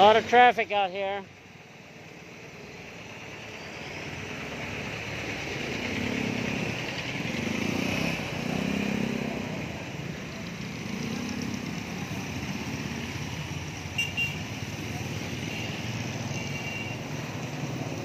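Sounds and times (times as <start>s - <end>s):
highway traffic passing: 0.0s - 18.0s.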